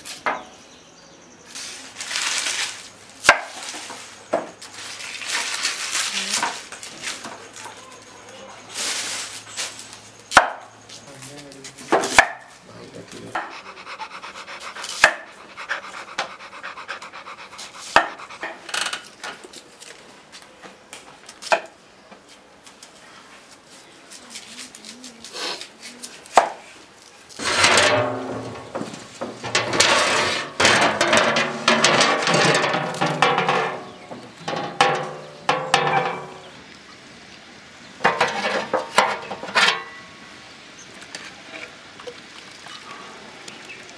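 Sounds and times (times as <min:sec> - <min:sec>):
voices: 0:10.9 - 0:14.6.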